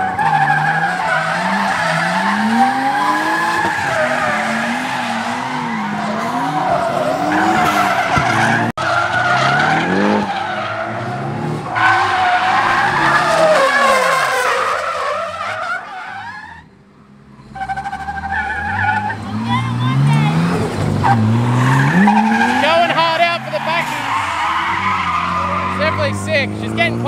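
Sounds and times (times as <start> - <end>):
car engine revving: 0.0 - 15.9, 17.2 - 27.0
tyres squealing: 17.6 - 27.0.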